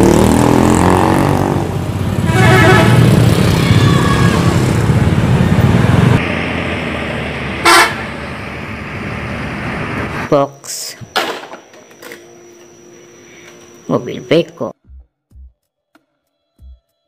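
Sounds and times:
motorcycle and bus engines: 0.0s - 10.5s
vehicle horn: 2.2s - 3.3s, 7.6s - 8.1s.

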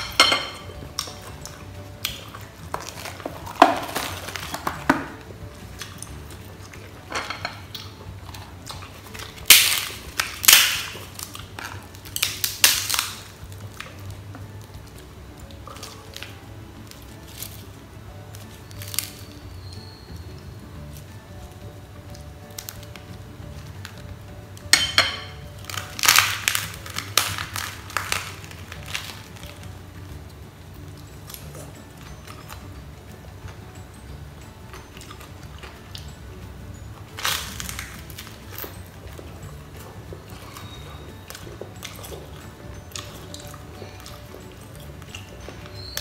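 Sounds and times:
soft background music: 0.0s - 46.0s
rice paper crunching: 25.5s - 29.7s, 37.1s - 38.7s.

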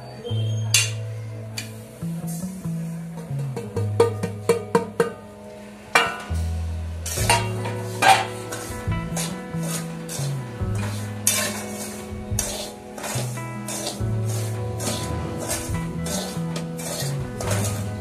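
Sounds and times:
background music: 0.0s - 18.0s
metal spoon scraping semolina: 7.1s - 18.0s.

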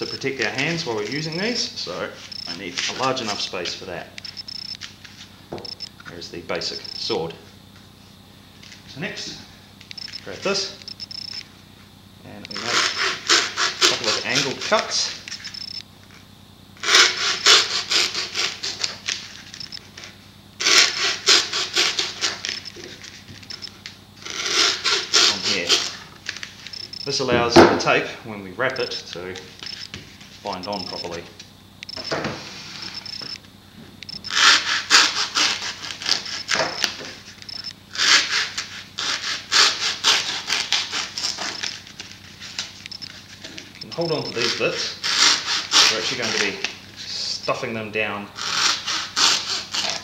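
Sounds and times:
hacksaw cutting foam: 12.5s - 14.6s, 16.8s - 19.0s, 20.6s - 22.6s, 24.3s - 25.9s, 34.3s - 36.8s, 38.0s - 41.7s, 44.3s - 46.3s, 48.4s - 50.0s.

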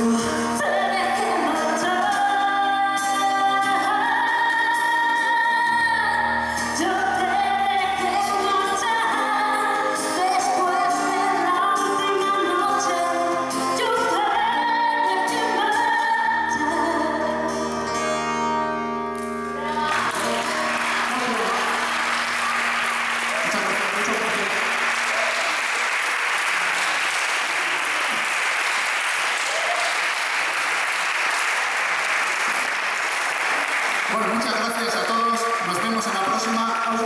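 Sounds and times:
acoustic instruments with bass: 0.0s - 4.3s, 5.4s - 23.6s
person singing: 0.0s - 17.7s
audience applause: 19.6s - 37.0s.

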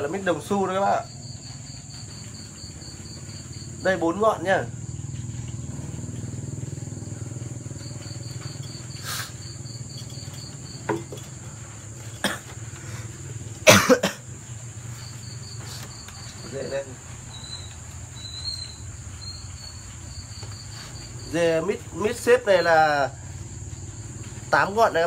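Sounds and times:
crickets chirping: 0.0s - 25.0s
knocks of pots and hangers: 9.9s - 11.6s.

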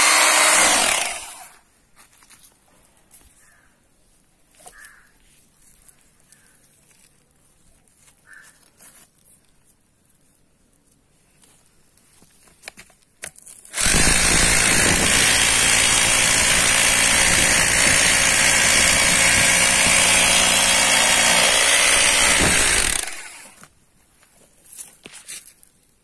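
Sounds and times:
electric drill boring into soil: 0.0s - 1.6s, 13.7s - 23.6s.

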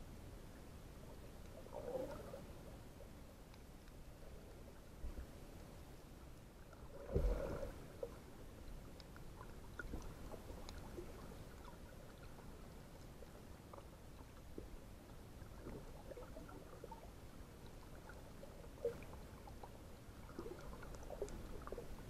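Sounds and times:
low underwater rumble: 0.0s - 22.0s
faint clicks: 3.4s - 4.2s, 8.0s - 14.7s, 20.3s - 21.8s.

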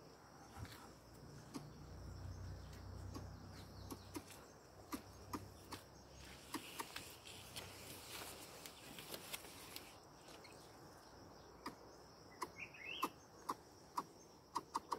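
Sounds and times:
sharp clicks and ticks: 3.0s - 5.9s, 6.5s - 7.0s, 12.4s - 14.9s
wavering bird chirp: 12.3s - 13.6s.

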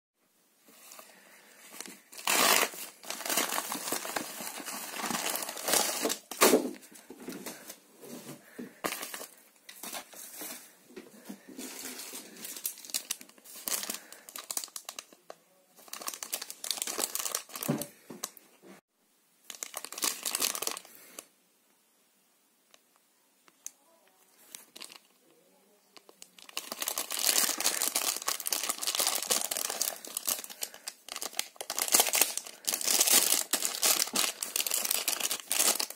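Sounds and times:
plastic packaging crinkling and tearing: 0.8s - 7.6s, 8.8s - 10.7s, 11.5s - 18.4s, 19.4s - 21.3s, 24.3s - 25.2s, 25.9s - 35.9s.

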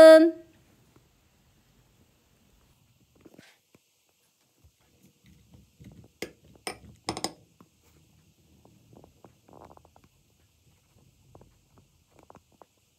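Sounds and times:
spoon stirring wet food: 4.8s - 7.7s
spoon clinking against bowl: 6.7s - 7.4s.

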